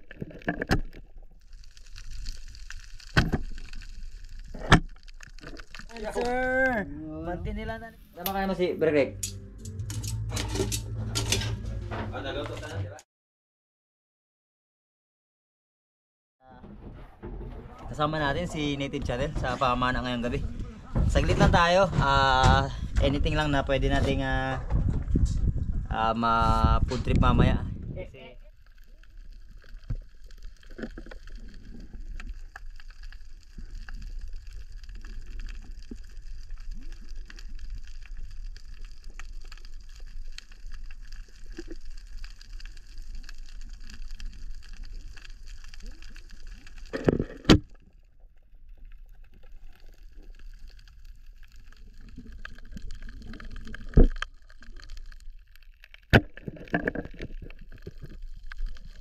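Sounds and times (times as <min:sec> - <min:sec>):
underwater hiss and crackle: 0:00.0 - 0:06.8, 0:28.1 - 0:59.0.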